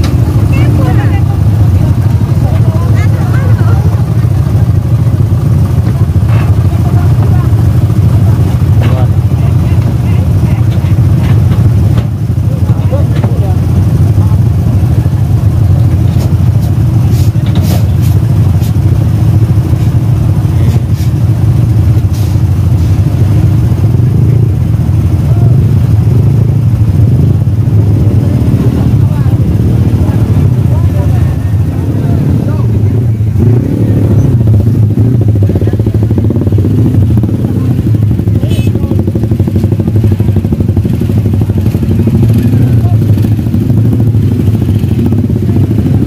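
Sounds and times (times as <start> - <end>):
vehicle motor rumble: 0.0 - 46.0.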